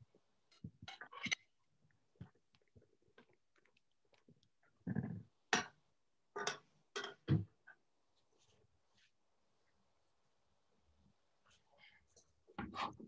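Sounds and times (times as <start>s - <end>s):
kitchen knocks and clatters: 4.8s - 7.8s.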